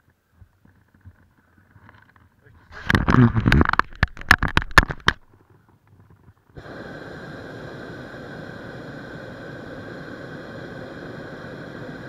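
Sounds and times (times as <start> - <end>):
hissing rush with whistling tones: 6.6 - 12.0.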